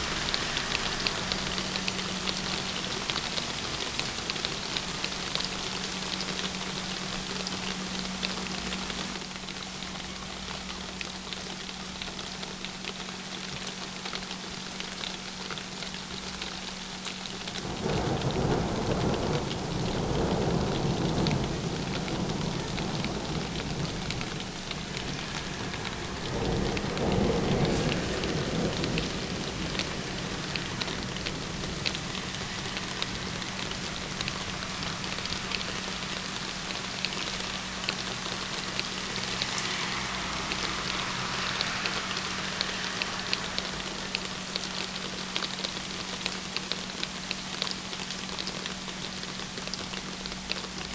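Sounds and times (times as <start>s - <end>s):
steady rain falling: 0.0s - 50.9s
rolls of thunder: 17.6s - 24.4s, 25.0s - 33.6s.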